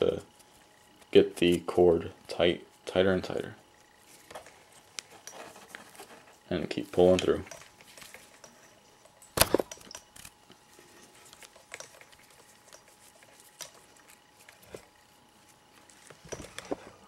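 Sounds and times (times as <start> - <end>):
cord rustling: 3.8 - 17.0.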